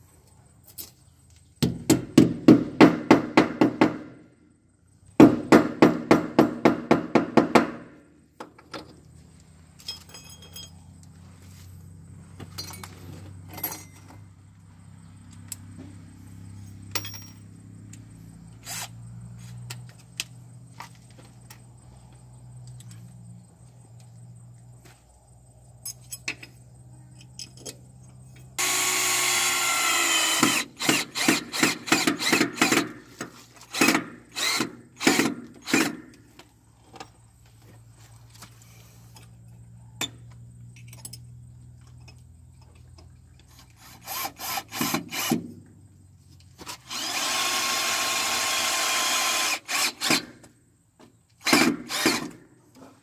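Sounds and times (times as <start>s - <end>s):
cordless drill drilling into wall: 28.6s - 32.9s, 33.6s - 36.0s, 43.8s - 45.4s, 46.6s - 50.3s, 51.4s - 52.4s.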